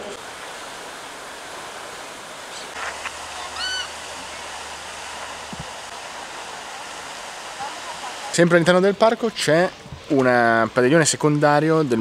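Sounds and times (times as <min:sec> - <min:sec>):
fountain spraying into pond: 0:00.0 - 0:12.0
waterbird call: 0:02.3 - 0:08.4.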